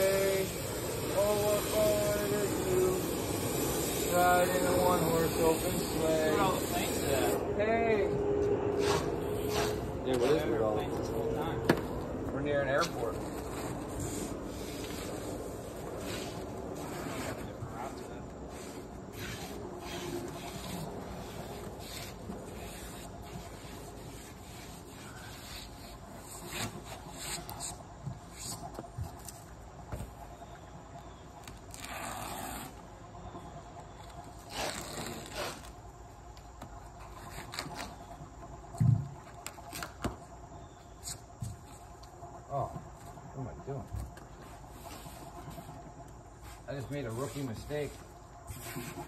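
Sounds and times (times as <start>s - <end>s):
foam sheets scraping on concrete: 0.0s - 7.4s, 8.7s - 10.9s, 12.6s - 28.6s, 34.4s - 35.8s, 48.5s - 49.0s.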